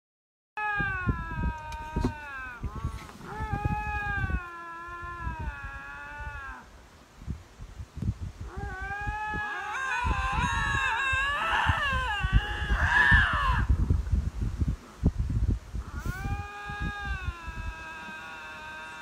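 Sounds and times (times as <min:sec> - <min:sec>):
lynx yowling: 0:00.6 - 0:06.7, 0:08.4 - 0:13.7, 0:15.8 - 0:19.0.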